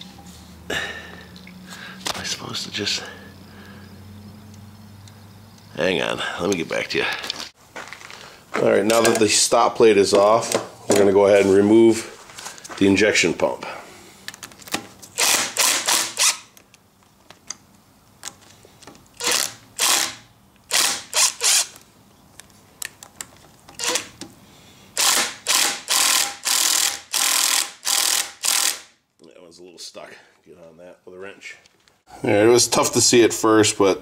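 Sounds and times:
ratchet wrench clicking: 15.2s - 16.5s, 19.2s - 21.8s, 25.0s - 28.9s.

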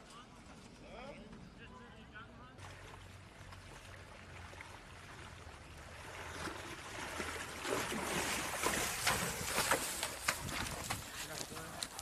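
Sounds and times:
horse splashing through water: 2.6s - 12.0s.

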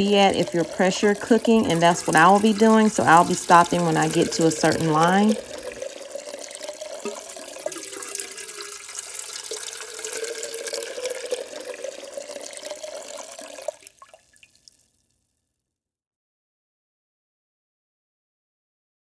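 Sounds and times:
water pouring into a pot: 0.0s - 15.1s.

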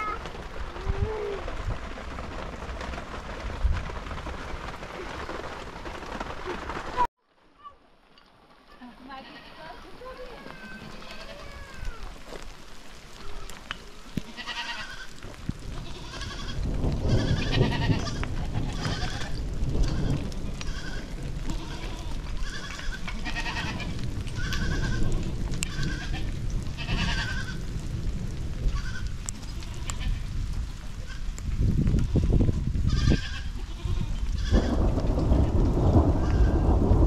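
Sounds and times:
goats bleating: 9.2s - 12.2s, 13.2s - 15.2s, 15.8s - 27.6s, 32.9s - 34.8s.

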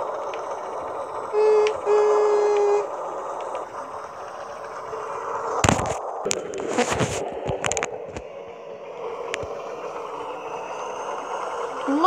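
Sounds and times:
toy train motor and wheels: 0.0s - 12.0s
toy train whistle toot: 1.3s - 2.9s.

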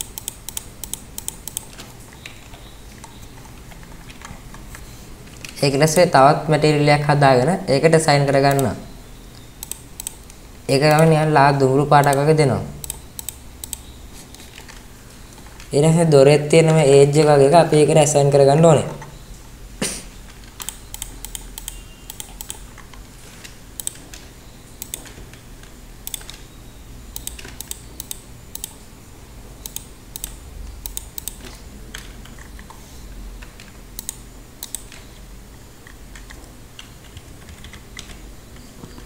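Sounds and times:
keyboard and mouse clicking: 0.0s - 6.2s, 8.4s - 11.3s, 12.0s - 15.7s, 20.3s - 26.5s, 27.1s - 28.8s, 29.6s - 32.8s, 33.4s - 35.2s, 35.8s - 39.0s.

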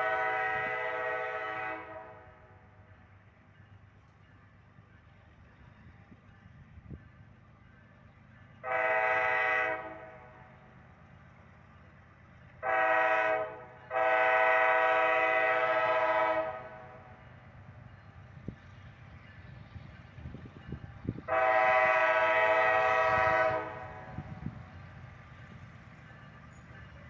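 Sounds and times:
locomotive horn blasts: 0.0s - 2.4s, 8.6s - 10.4s, 12.6s - 17.1s, 21.3s - 24.5s
low train rumble: 0.0s - 27.0s.

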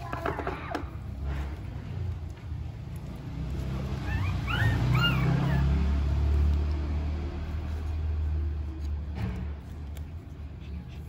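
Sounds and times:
puppy whimpering: 3.9s - 6.0s.

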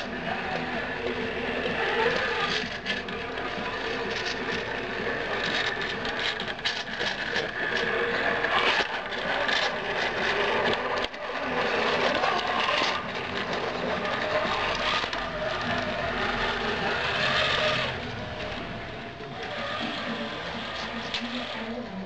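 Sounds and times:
toy truck motor whirring: 0.0s - 22.0s
tyres scraping on wood: 0.0s - 22.0s.

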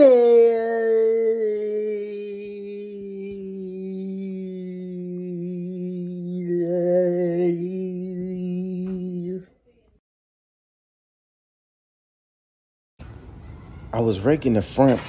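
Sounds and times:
long held chant-like vocal note: 0.0s - 9.5s.

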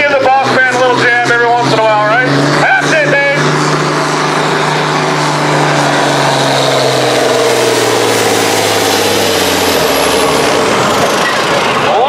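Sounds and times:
tractor diesel engine under load: 0.0s - 12.0s.

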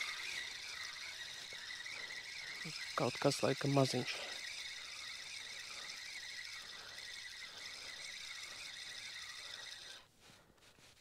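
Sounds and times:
night insects chirring: 0.0s - 3.4s.

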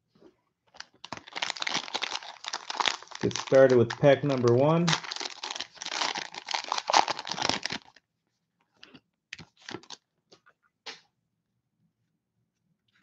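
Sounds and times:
plastic wrapper tearing: 0.7s - 8.0s, 9.4s - 10.0s.

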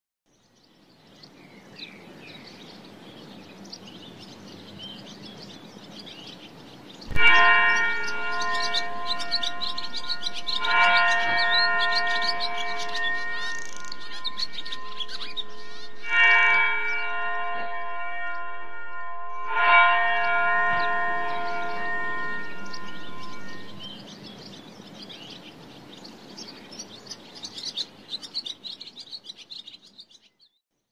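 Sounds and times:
birds chirping: 0.5s - 30.4s
bell-like chime ringing: 7.1s - 24.1s.

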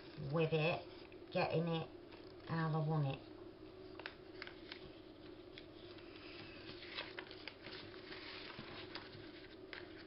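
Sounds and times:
paper rustling: 3.8s - 10.0s.

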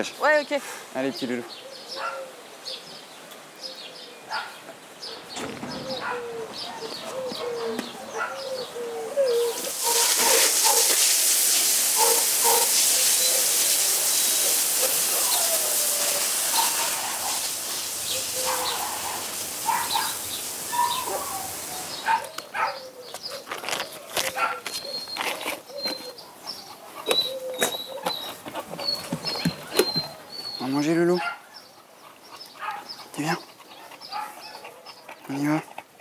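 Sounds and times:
birds calling: 0.0s - 36.0s
hose spraying water on concrete: 9.2s - 22.6s.

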